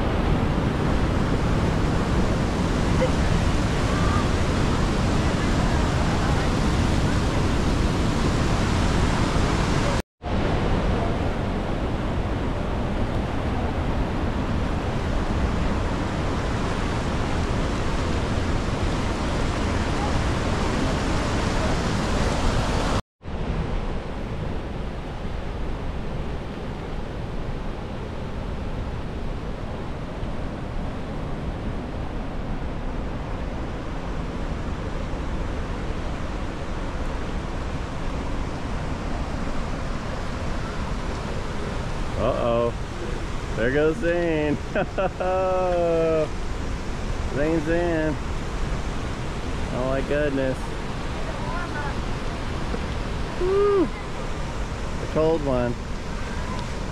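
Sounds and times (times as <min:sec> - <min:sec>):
waterfall rushing: 0:00.0 - 0:11.7, 0:12.4 - 0:23.0, 0:33.1 - 0:56.9
whitewater rushing into pool: 0:34.2 - 0:56.9.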